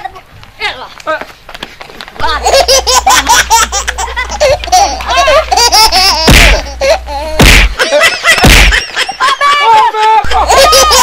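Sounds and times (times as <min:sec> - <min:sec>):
person laughing loudly: 0:02.2 - 0:11.0.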